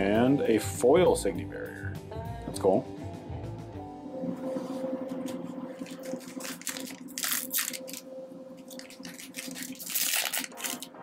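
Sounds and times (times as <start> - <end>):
faint background music: 0.0 - 11.0
foil packs crinkling: 5.8 - 11.0.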